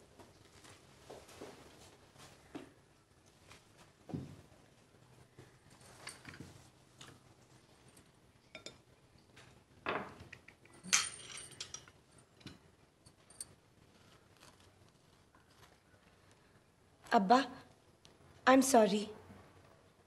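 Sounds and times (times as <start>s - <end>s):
silverware clinking on china: 8.5s - 8.9s, 9.9s - 13.5s.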